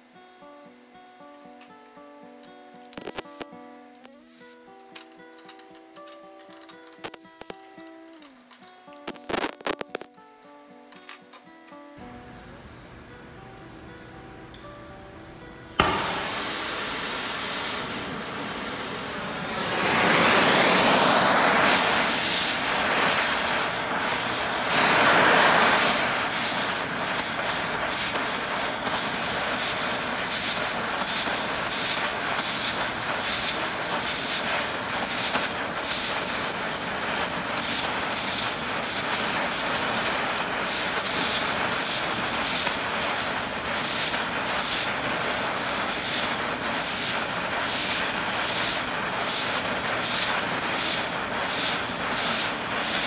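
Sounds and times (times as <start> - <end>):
torch flame hissing: 3.0 - 4.7, 9.0 - 10.1, 15.8 - 53.0.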